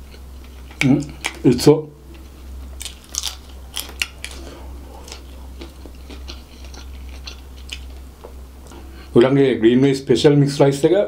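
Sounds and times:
chewing fried rice with crunches: 2.7s - 8.1s.

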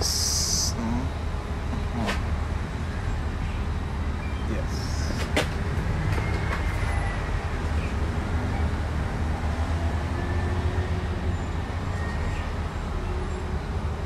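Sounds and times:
background hiss: 0.0s - 1.1s
steady low rumble: 0.0s - 5.8s.

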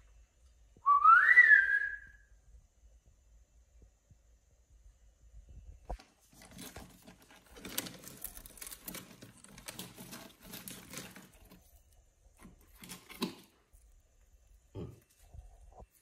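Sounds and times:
plastic bag crinkling: 6.0s - 13.9s.

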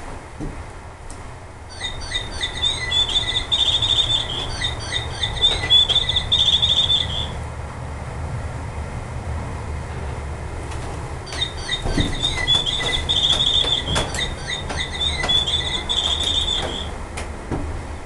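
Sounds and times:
songbird singing: 1.7s - 7.4s, 11.2s - 17.0s.

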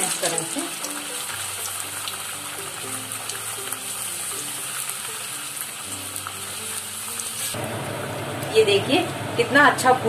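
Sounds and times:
dough sizzling in hot oil: 0.0s - 7.7s.

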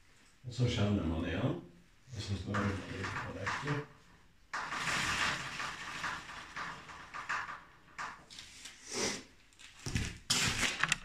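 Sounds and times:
bicycle chain whirring over sprockets: 4.6s - 8.2s.

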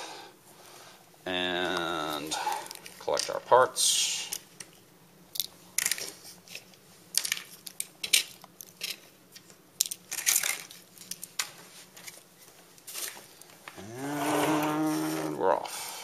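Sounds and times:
electronic parts rustling and clicking: 1.8s - 3.5s, 4.3s - 13.8s.

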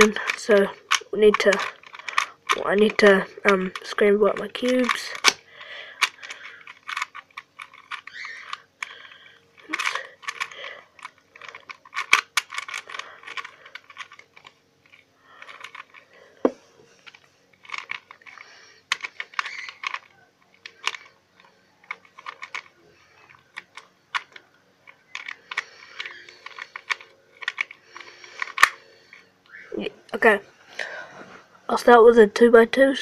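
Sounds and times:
puzzle cube clicking: 0.0s - 29.3s.

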